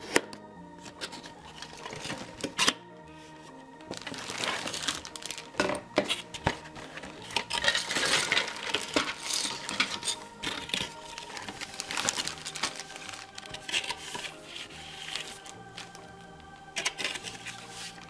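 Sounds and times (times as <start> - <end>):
cardboard scraping and rustling: 0.9 - 2.7, 3.9 - 15.9
plastic bags crinkling: 0.9 - 2.7, 3.8 - 16.1, 16.7 - 18.0
plastic parts clicking: 3.9 - 14.3.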